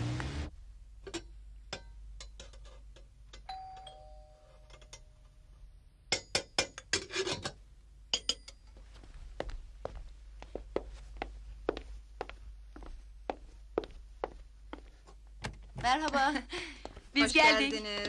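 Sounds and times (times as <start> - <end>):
two-tone doorbell chime: 3.5 - 4.8.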